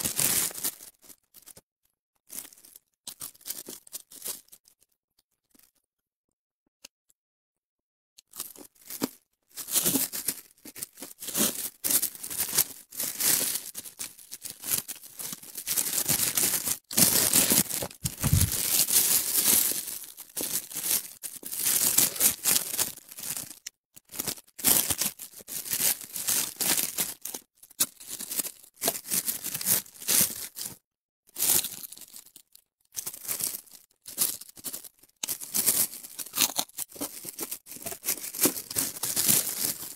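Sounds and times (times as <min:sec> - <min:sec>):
plastic gloves crinkling: 0:00.0 - 0:01.6, 0:02.3 - 0:04.8, 0:08.4 - 0:30.8, 0:31.4 - 0:39.9
chewing crunchy food: 0:02.3 - 0:04.8, 0:08.2 - 0:09.2, 0:16.8 - 0:18.6, 0:31.5 - 0:39.9
crispy fish crackling and tearing: 0:08.2 - 0:30.8, 0:31.4 - 0:39.9.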